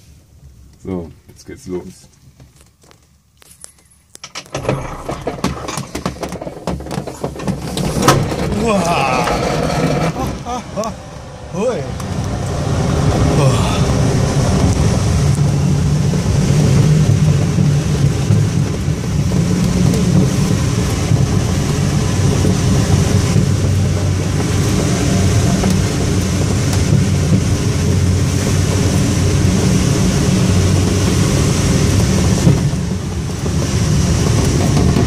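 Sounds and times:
airflow rushing over canopy: 0:07.1 - 0:35.0.

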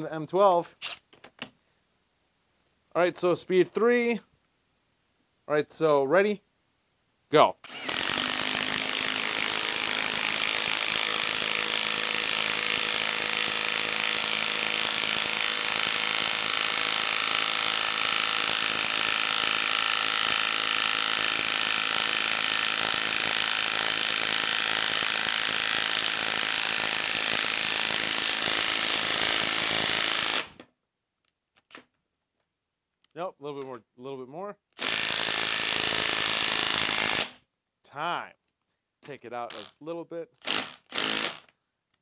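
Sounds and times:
impact wrench hammering: 0:07.7 - 0:30.5.

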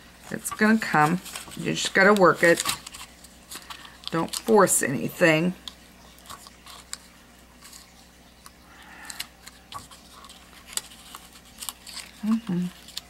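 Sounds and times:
faint paper scratching: 0:08.9 - 0:13.0.

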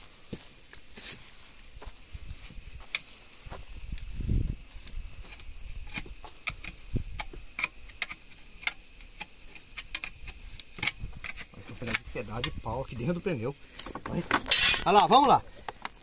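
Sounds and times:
objects clicking and knocking: 0:13.8 - 0:16.0.

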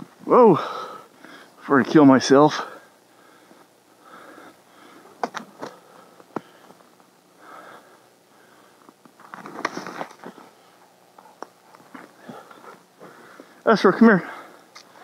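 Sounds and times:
man breathing and sniffing: 0:00.5 - 0:01.6, 0:02.5 - 0:15.0
rustling: 0:08.6 - 0:13.6.

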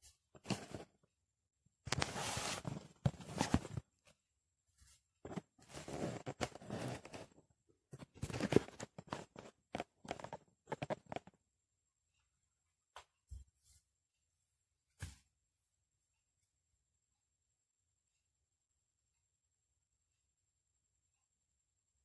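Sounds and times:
rustling and crunching: 0:01.9 - 0:03.9, 0:05.2 - 0:07.4, 0:08.0 - 0:11.3.

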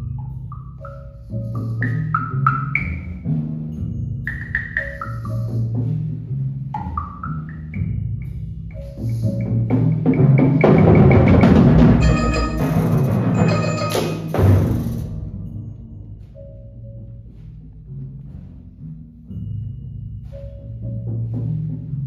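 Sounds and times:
percussion ensemble playing drums: 0:09.1 - 0:15.8.

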